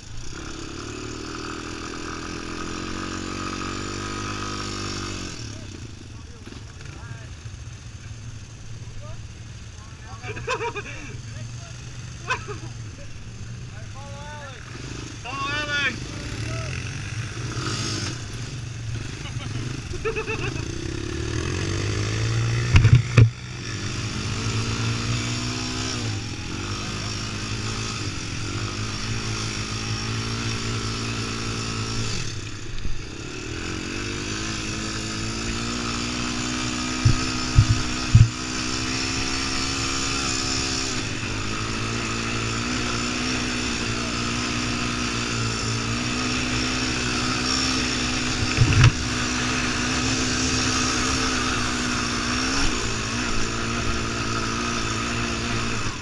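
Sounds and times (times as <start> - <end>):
atv engine running: 0.0 - 56.0
sharp knocks: 37.0 - 38.4.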